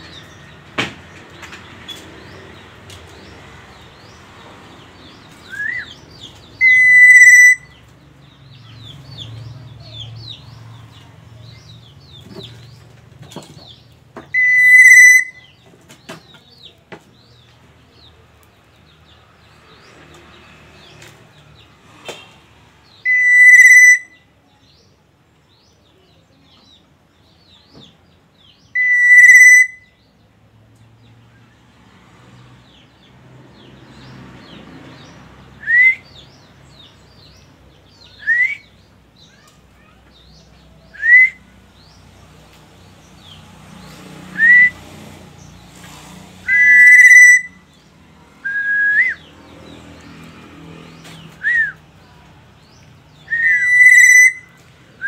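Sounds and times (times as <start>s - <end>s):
bird fluty whistles: 5.4s - 6.0s, 6.6s - 7.8s, 14.4s - 15.6s, 23.1s - 24.2s, 28.8s - 30.0s, 35.6s - 36.2s, 38.2s - 38.9s, 40.9s - 41.4s, 44.4s - 44.8s, 46.5s - 47.6s, 48.4s - 49.3s, 51.4s - 51.8s, 53.2s - 54.5s.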